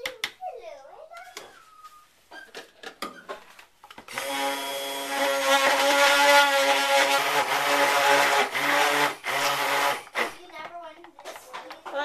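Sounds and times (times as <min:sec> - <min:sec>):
immersion blender running: 0:04.1 - 0:10.3.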